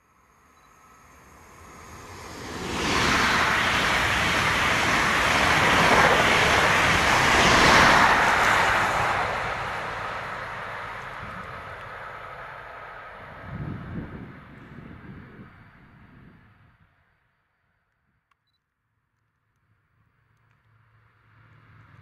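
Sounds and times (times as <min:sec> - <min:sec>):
train passing at speed: 0:00.0 - 0:16.8
wheels rushing on rail: 0:00.5 - 0:16.5.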